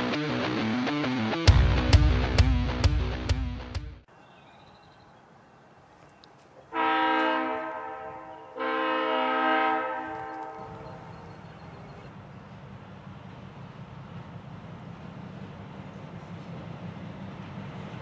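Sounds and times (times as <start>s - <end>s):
train horn blasts: 6.7s - 11.1s
locomotive rumble: 6.7s - 18.0s.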